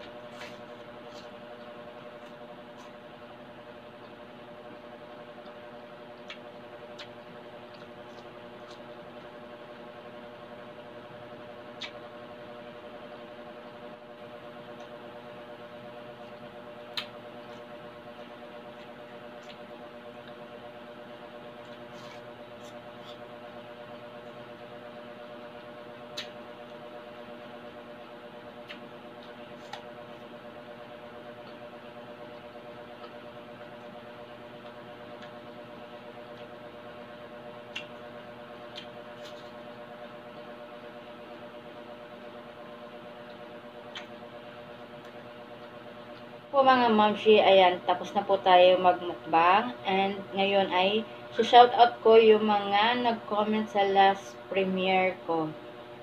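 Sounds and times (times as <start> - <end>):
steady electrical hum: 0.0 - 56.0
mouth clicks and smacks: 37.7 - 38.0.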